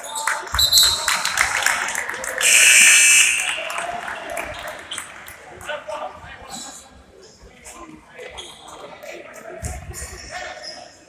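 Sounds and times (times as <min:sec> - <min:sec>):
court noise: 0:00.0 - 0:11.0
crowd voices: 0:00.0 - 0:11.0
scoreboard horn buzz: 0:02.4 - 0:03.9.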